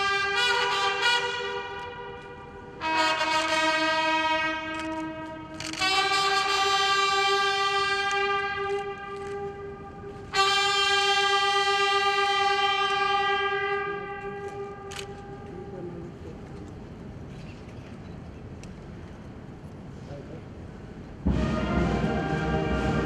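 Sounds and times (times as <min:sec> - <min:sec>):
trumpet fanfare: 0:00.0 - 0:15.5, 0:21.3 - 0:23.0.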